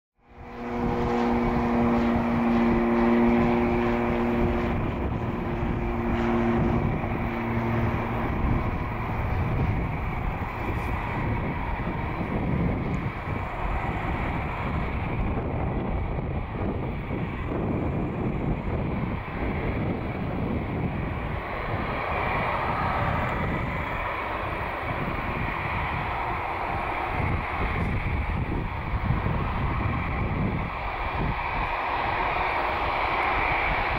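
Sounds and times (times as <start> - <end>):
jet engines whining: 0.2 - 33.9
low rumble: 0.2 - 33.9.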